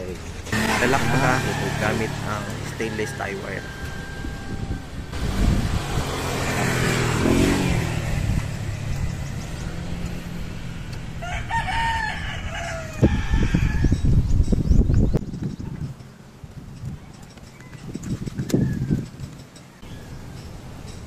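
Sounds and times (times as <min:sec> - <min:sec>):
rooster crowing: 0:00.6 - 0:05.2, 0:11.2 - 0:14.1
knocks and thumps of wire work: 0:14.0 - 0:21.0.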